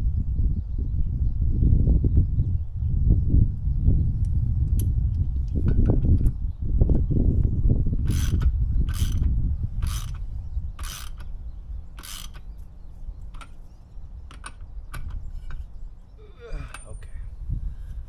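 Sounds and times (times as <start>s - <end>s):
socket ratchet clicking: 8.0s - 10.2s, 10.8s - 11.4s, 12.0s - 12.5s, 13.3s - 13.6s, 14.3s - 15.3s.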